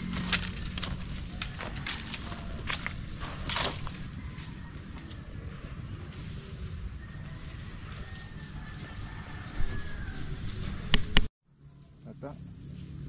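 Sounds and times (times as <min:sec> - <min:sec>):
low rumble: 0:00.0 - 0:04.2
insects droning: 0:00.0 - 0:13.0.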